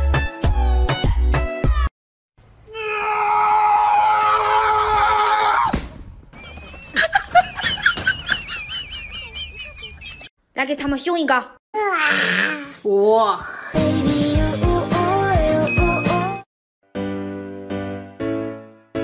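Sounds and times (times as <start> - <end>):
loud drawn-out scream: 2.7 - 5.8.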